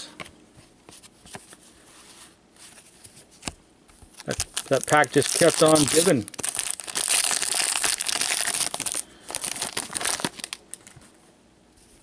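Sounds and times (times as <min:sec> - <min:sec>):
foil wrapper crinkling: 0:04.1 - 0:11.0.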